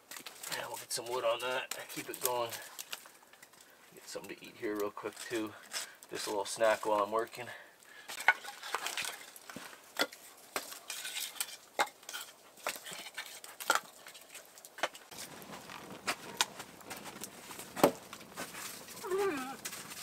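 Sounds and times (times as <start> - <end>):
wood fire crackling and popping: 0.0 - 20.0
firewood knocking together: 8.1 - 14.0, 14.7 - 20.0.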